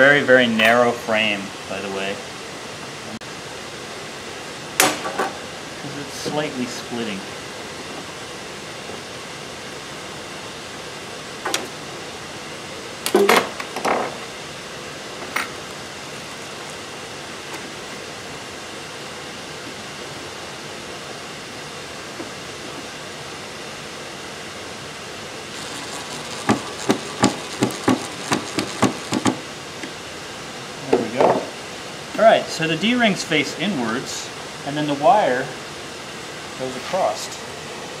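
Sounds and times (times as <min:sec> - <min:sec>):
hand tools knocking on wood: 0:26.5 - 0:29.4.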